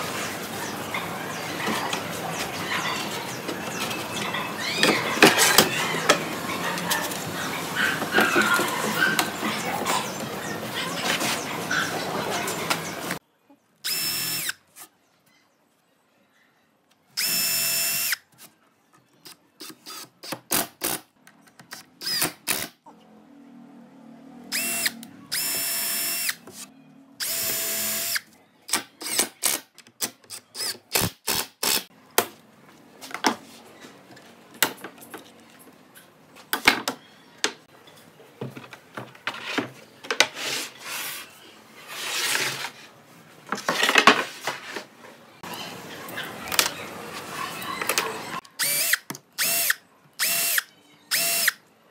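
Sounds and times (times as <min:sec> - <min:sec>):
cordless drill whining into wood: 0:13.9 - 0:14.6, 0:17.2 - 0:18.2, 0:24.5 - 0:26.4, 0:27.2 - 0:28.2, 0:48.6 - 0:51.6.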